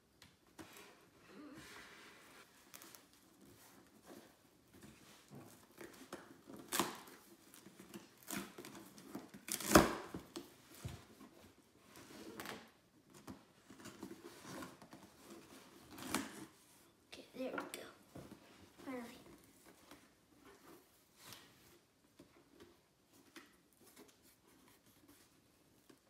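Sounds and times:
packing tape scraping and ripping: 5.5 - 10.5, 13.7 - 16.6.

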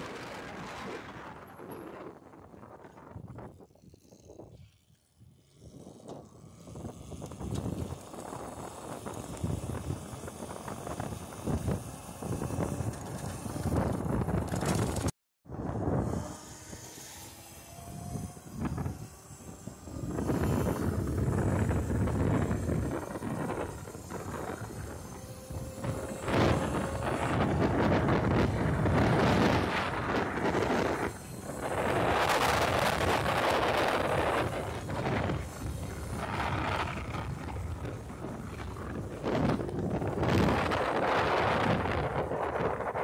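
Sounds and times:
faint electric motor whine: 0.0 - 43.0
road rumble: 0.0 - 43.0
wind buffeting microphone: 0.0 - 43.0.

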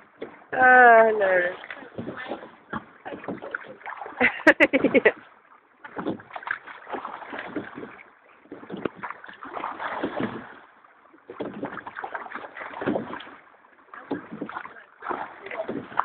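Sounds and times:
oars knocking: 0.0 - 5.2, 5.8 - 10.6, 11.2 - 16.0
water splashing: 0.0 - 16.0.

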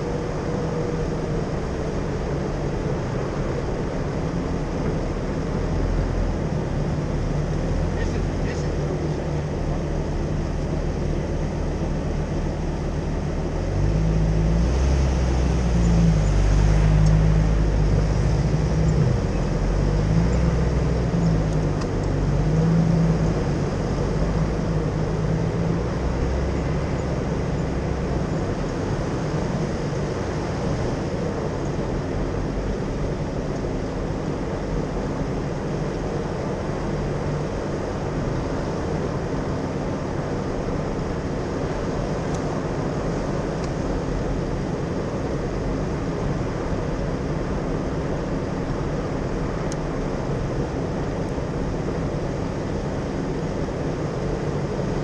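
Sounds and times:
car engine driving: 0.0 - 55.0
tyres on sandy dirt track: 0.0 - 55.0.

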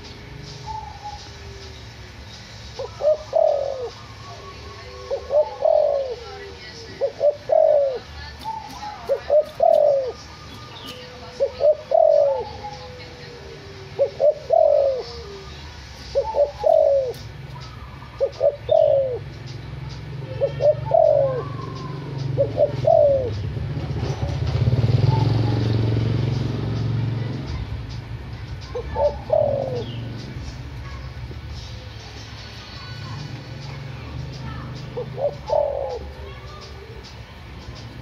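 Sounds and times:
dove cooing: 2.8 - 27.3, 28.7 - 32.2, 32.8 - 38.0.

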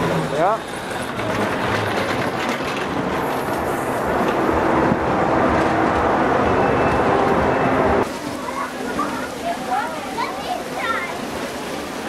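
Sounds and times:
roller coaster rail rumble: 0.0 - 12.0.

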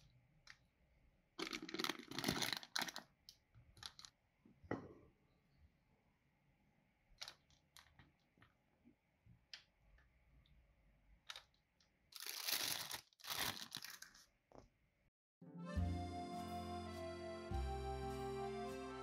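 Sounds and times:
plastic bag crinkling: 1.4 - 3.2, 3.8 - 4.1, 12.1 - 14.4.

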